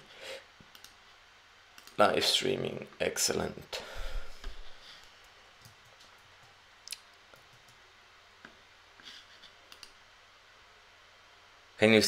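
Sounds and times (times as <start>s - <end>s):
low room hiss: 0.0s - 12.0s
computer mouse clicks: 0.6s - 1.0s, 1.8s - 2.0s, 5.0s - 7.8s, 9.7s - 10.0s.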